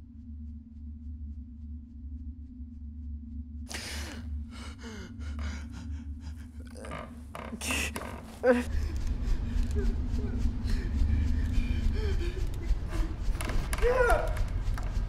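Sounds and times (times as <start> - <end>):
low steady drone: 0.0 - 7.4, 8.7 - 13.6
man breathing hard: 3.7 - 7.2
groaning breath: 3.7 - 14.6.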